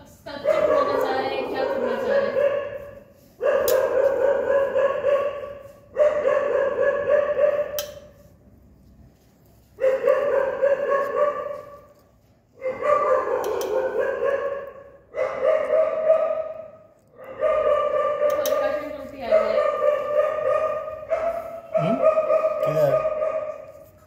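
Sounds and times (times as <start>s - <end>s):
dog crying out: 21.7s - 23.2s.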